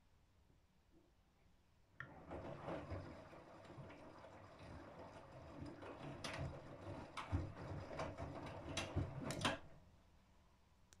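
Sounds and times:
washing machine water splashing: 0:02.0 - 0:09.8.

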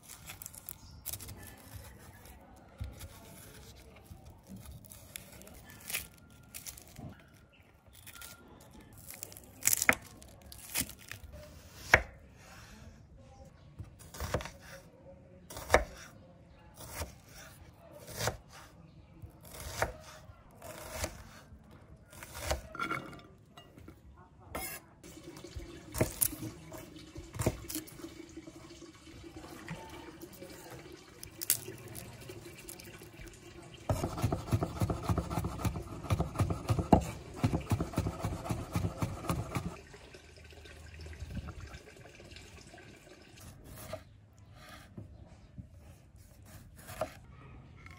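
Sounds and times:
knife cutting onion on board: 0:14.0 - 0:14.8, 0:15.5 - 0:16.1, 0:16.8 - 0:18.7, 0:19.4 - 0:21.5, 0:22.1 - 0:23.1, 0:24.6 - 0:24.9, 0:33.9 - 0:39.8, 0:46.2 - 0:47.3
cleaver chopping garlic fast: 0:33.9 - 0:39.8.

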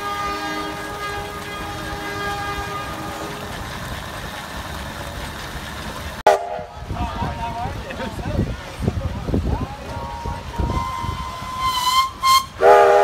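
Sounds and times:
steam whistle blast: 0:10.0 - 0:13.0.

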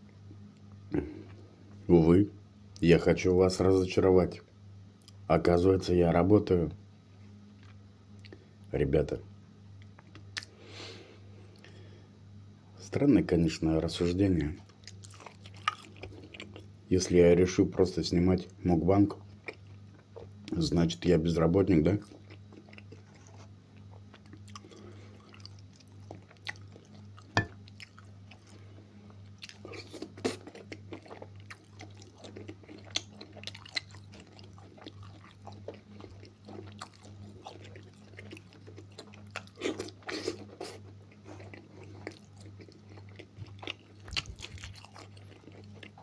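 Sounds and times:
chewing and biting: 0:14.7 - 0:16.8, 0:19.2 - 0:20.3, 0:22.0 - 0:46.0.

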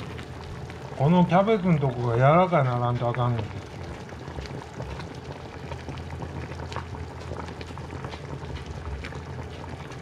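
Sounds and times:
low steady hum: 0:00.0 - 0:10.0
pot bubbling with small pops: 0:00.0 - 0:10.0.

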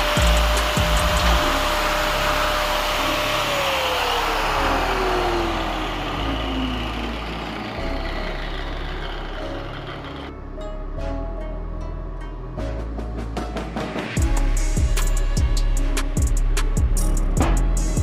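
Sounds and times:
angle grinder whining and winding down: 0:00.0 - 0:10.4.

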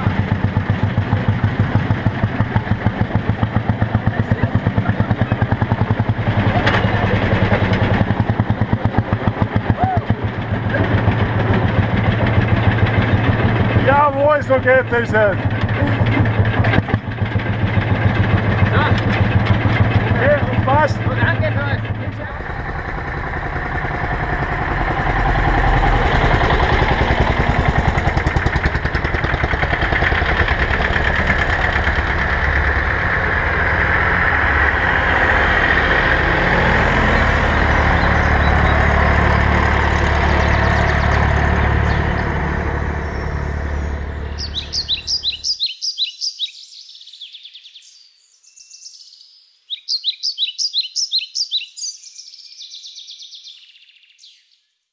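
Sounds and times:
tractor engines driving past: 0:00.0 - 0:45.6
birds chirping: 0:10.1 - 0:24.6, 0:35.0 - 0:54.8.

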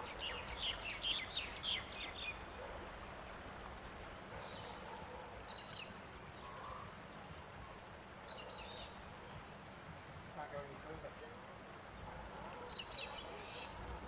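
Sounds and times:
bird chirps: 0:00.0 - 0:02.4, 0:12.7 - 0:13.8.

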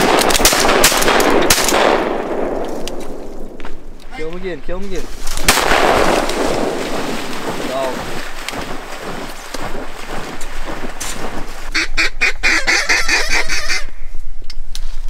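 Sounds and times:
duck quacking: 0:11.7 - 0:13.9.

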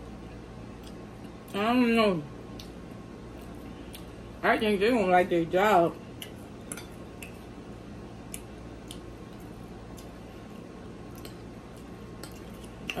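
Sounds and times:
person chewing: 0:02.5 - 0:04.2, 0:08.3 - 0:13.0.

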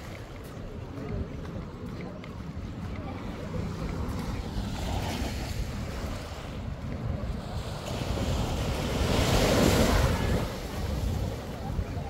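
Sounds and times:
wind rumbling on microphone: 0:00.0 - 0:12.0
surf washing onto beach: 0:02.6 - 0:12.0.

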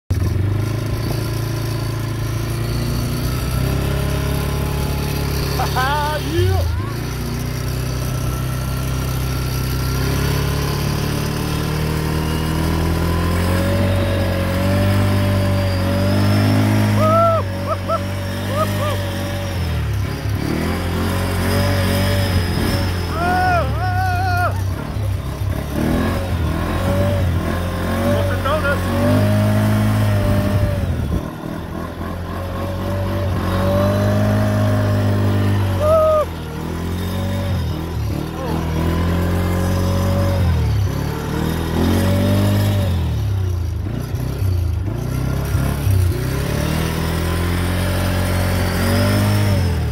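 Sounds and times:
off-road vehicle engine running: 0:00.0 - 0:49.9.

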